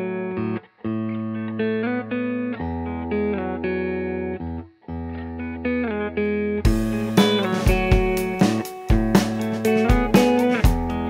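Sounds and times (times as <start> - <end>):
plucked guitar chords: 0.0 - 11.0.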